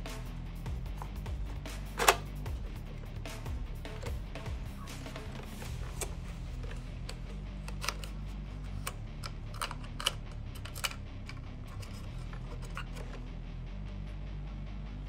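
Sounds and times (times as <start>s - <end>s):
background music: 0.0s - 15.0s
plastic toy gun clicks: 8.7s - 12.0s.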